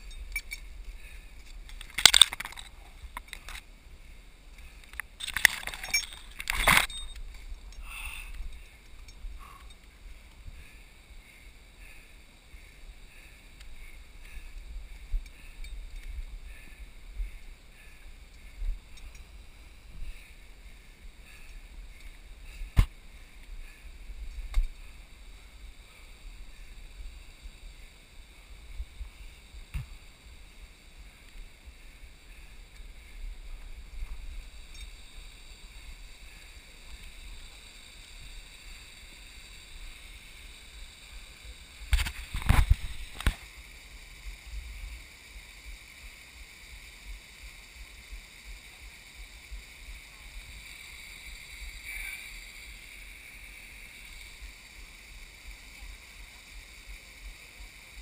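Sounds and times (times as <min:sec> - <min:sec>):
wind rumbling on microphone: 0:39.9 - 0:45.1.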